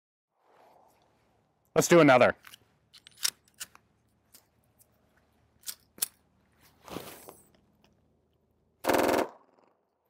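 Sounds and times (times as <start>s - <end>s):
pistol being handled clicking: 2.4s - 4.9s, 5.6s - 6.2s
scraping rustle: 6.6s - 7.5s.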